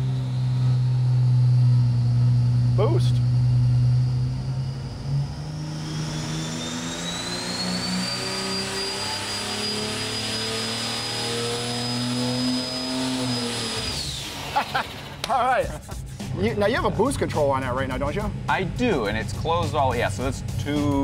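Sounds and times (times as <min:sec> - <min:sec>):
turbocharger whistle: 0:00.0 - 0:15.2
engine revving under load: 0:00.0 - 0:15.3.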